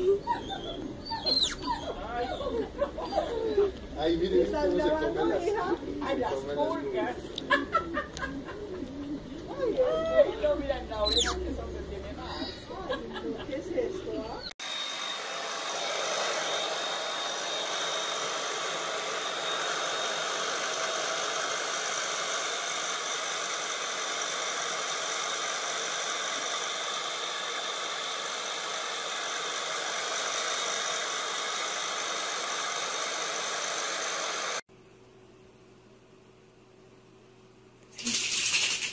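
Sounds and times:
hair dryer running: 14.6 - 34.7.

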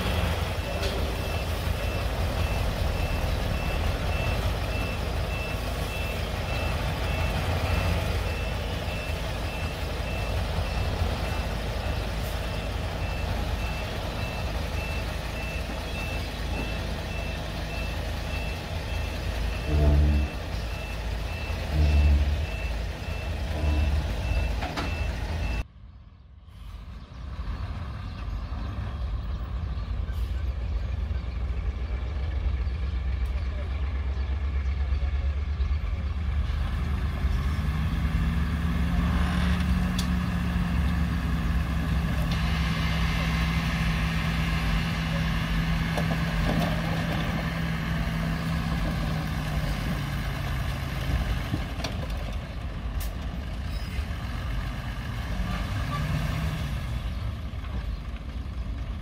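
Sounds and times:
diesel engine running: 0.0 - 25.7, 26.5 - 59.0
back-up alarm beeping: 12.6 - 25.6.

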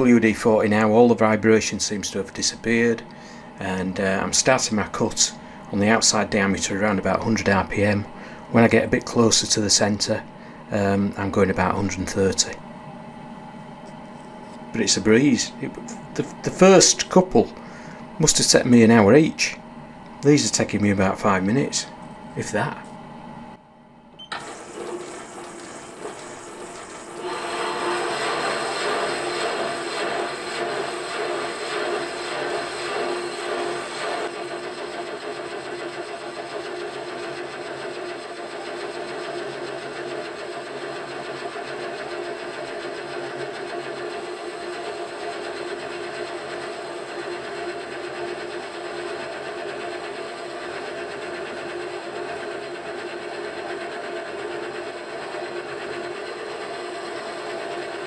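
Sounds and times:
metal lathe humming: 24.3 - 58.0
lathe tool cutting metal: 24.4 - 58.0.

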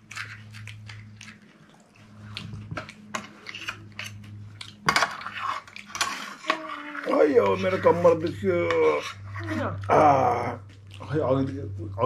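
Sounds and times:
crunching and chewing: 0.0 - 8.3, 10.6 - 11.6
steady low hum: 0.0 - 12.0
wet slurping: 0.1 - 7.8.

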